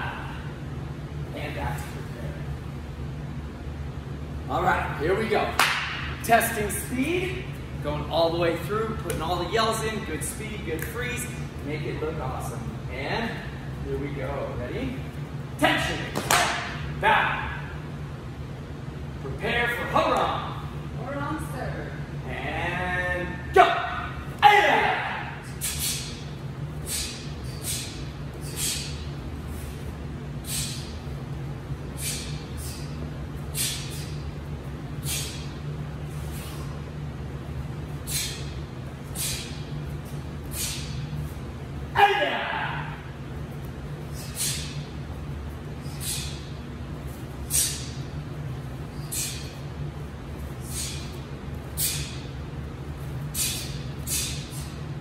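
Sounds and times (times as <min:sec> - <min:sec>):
steady low hum: 0:00.0 - 0:55.0
sharp hissing bursts: 0:25.4 - 0:31.2, 0:31.8 - 0:36.8, 0:37.9 - 0:41.4, 0:44.0 - 0:45.0, 0:45.8 - 0:46.7, 0:47.4 - 0:48.2, 0:48.8 - 0:49.7, 0:50.5 - 0:52.4, 0:53.2 - 0:54.9.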